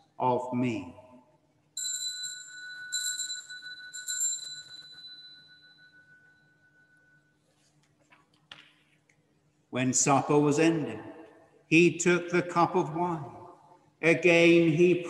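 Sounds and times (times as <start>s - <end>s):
small bell ringing: 1.8s - 7.4s.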